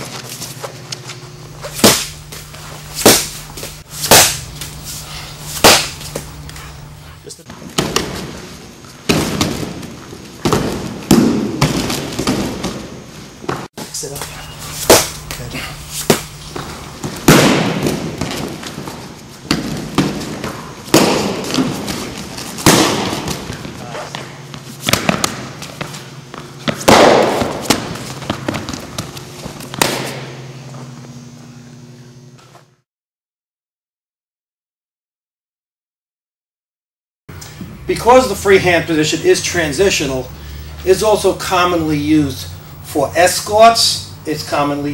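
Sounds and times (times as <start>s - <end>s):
low hum: 0.0s - 7.5s, 13.8s - 18.8s, 37.3s - 43.2s
baton hitting padded suit: 1.6s - 4.8s, 5.4s - 6.3s, 14.8s - 18.8s, 19.5s - 22.0s, 22.6s - 23.6s, 26.7s - 28.6s, 29.8s - 30.4s.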